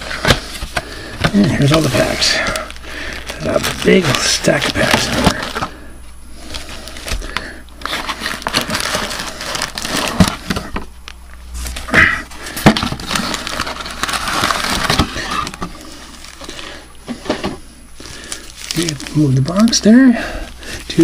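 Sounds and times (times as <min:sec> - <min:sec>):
card packs rustling: 0:00.0 - 0:21.0
box thumping: 0:12.0 - 0:13.6.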